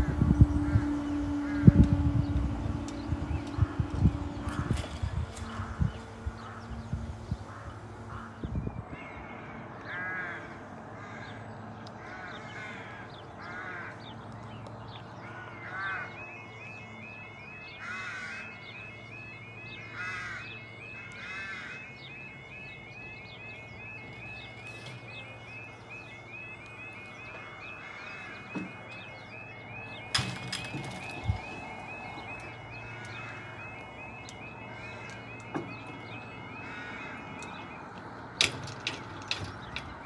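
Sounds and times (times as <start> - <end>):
crow cawing: 7.3 - 8.4, 9.0 - 11.4, 12.0 - 14.0, 15.2 - 16.1, 17.8 - 18.6, 19.8 - 21.9, 27.4 - 28.6, 32.8 - 33.6, 34.6 - 35.2, 36.6 - 37.5.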